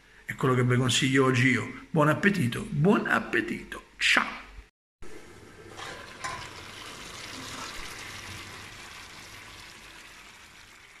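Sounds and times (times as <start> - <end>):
potatoes sizzling in frying pan: 5.8 - 11.0.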